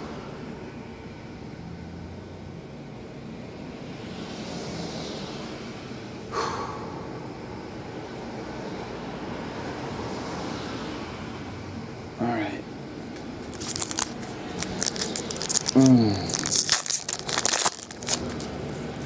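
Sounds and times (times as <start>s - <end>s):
man breathing heavily: 6.3s - 7.3s, 15.7s - 16.5s.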